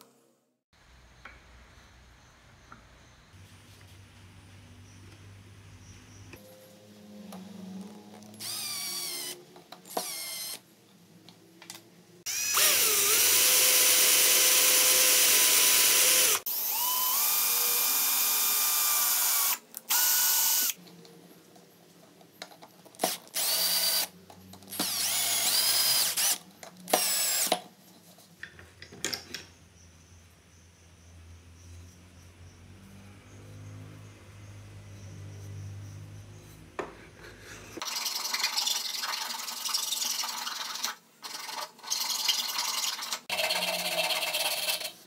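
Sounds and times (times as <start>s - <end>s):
electric drill whining: 8.4s - 10.6s, 12.3s - 20.8s, 23.0s - 24.1s, 24.7s - 27.5s.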